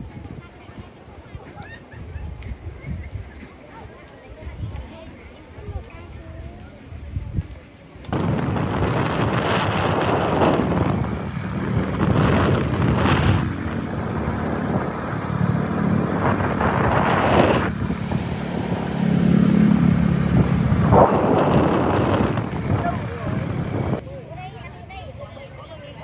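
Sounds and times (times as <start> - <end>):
wind buffeting microphone: 5.7 - 24.0
road rumble: 8.1 - 25.1.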